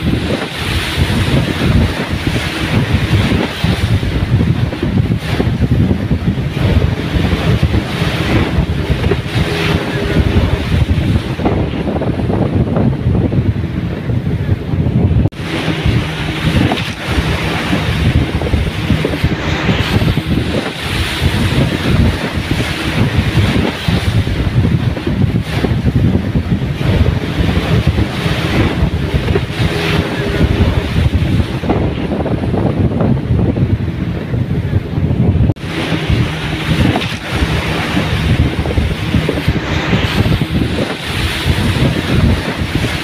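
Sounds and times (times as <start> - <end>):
outboard motors running: 0.0 - 43.0
rushing water: 0.0 - 43.0
wind buffeting microphone: 0.0 - 43.0.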